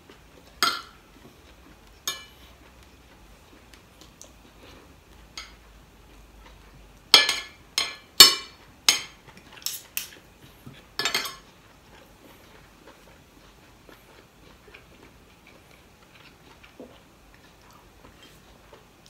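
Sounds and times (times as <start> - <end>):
cutlery clinking on ceramic plate: 0.6 - 1.0, 2.1 - 2.4, 7.2 - 10.2, 11.0 - 11.5.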